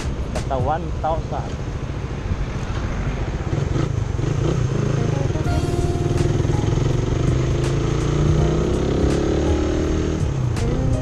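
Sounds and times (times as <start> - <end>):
music: 0.0 - 0.8, 5.0 - 11.0
motorcycle engine accelerating: 3.4 - 10.9.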